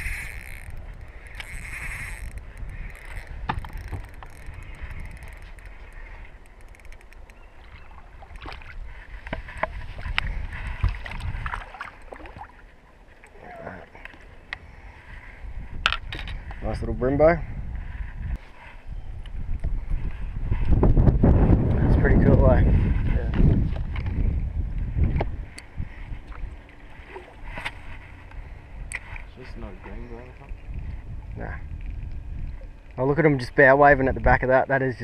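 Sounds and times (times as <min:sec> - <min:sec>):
fishing reel whirring: 0:00.0 - 0:07.4
wind rumbling on microphone: 0:00.0 - 0:35.0
fish splashing: 0:10.8 - 0:13.4.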